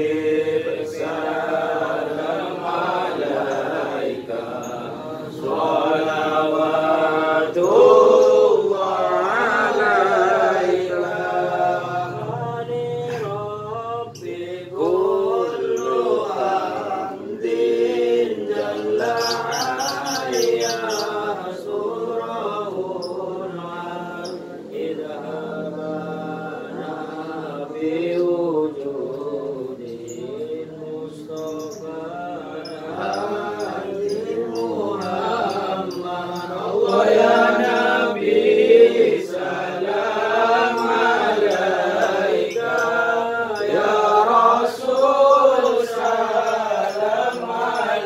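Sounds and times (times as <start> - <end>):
men chanting in unison: 0.0 - 48.0.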